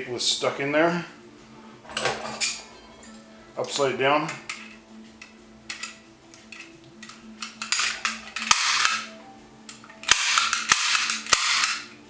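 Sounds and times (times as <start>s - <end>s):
staple gun clicks and rattles: 4.5s - 9.1s, 9.7s - 11.9s
sharp metallic snaps: 9.7s - 11.9s.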